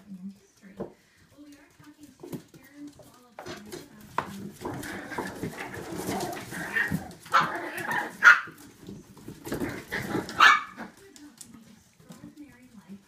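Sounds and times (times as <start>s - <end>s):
puppies yipping and barking: 10.0s - 10.9s.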